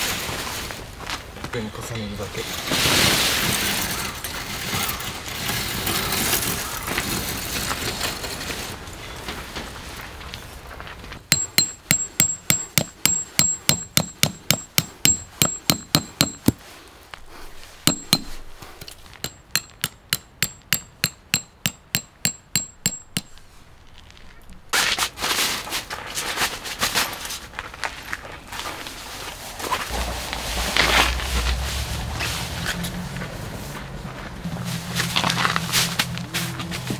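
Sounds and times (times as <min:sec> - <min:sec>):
hammer striking metal pegs: 0:11.3 - 0:16.6, 0:17.8 - 0:23.4
scraping noise: 0:29.2 - 0:36.9.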